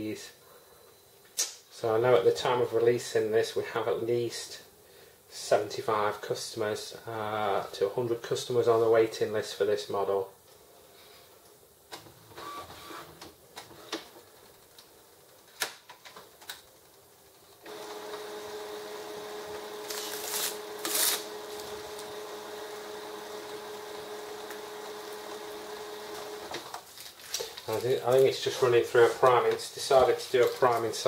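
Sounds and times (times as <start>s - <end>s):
printer mechanism whirring: 17.6s - 26.8s.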